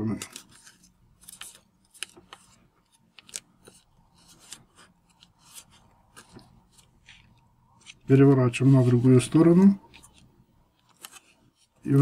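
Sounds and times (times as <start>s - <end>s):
paper crinkling and rustling: 0.0s - 12.0s.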